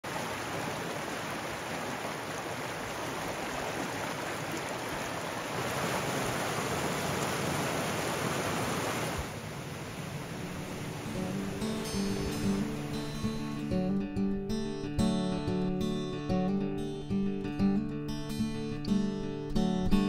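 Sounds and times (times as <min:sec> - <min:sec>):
stream flowing over rocks: 0:00.0 - 0:13.7.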